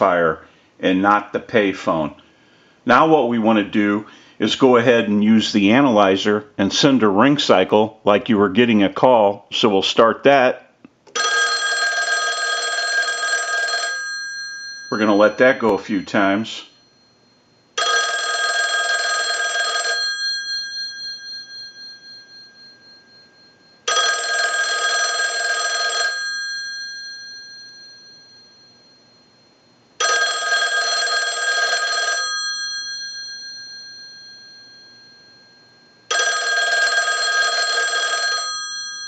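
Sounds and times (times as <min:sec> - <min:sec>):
payphone ringer bell ringing: 0:11.2 - 0:39.0.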